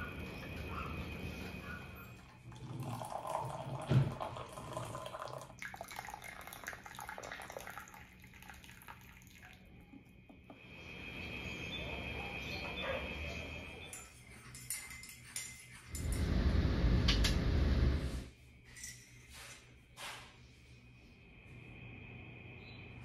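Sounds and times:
water pouring into mug: 2.2s - 9.8s.

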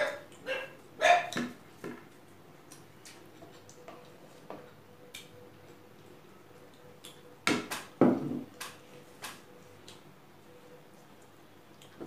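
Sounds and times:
eating by hand smacks and clicks: 0.2s - 7.9s, 8.5s - 10.1s, 11.1s - 12.0s.

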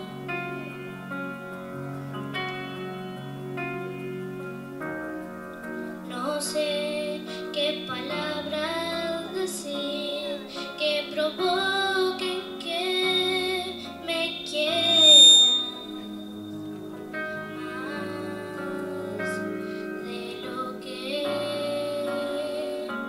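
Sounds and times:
girl singing into a microphone: 6.0s - 15.2s, 17.3s - 23.0s.

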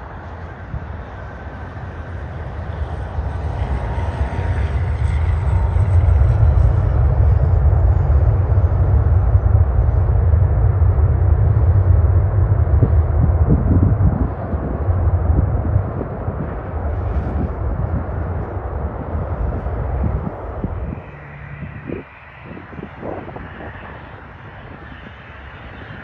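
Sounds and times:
aircraft engine rumble: 0.0s - 26.0s
high whine falling in pitch: 4.6s - 24.8s.

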